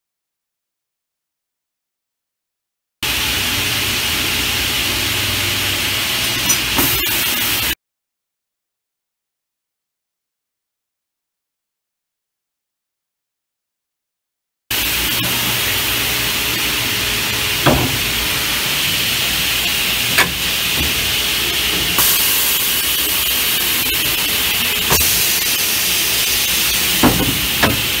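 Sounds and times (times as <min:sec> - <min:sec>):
circular saw cutting: 0:14.8 - 0:28.0.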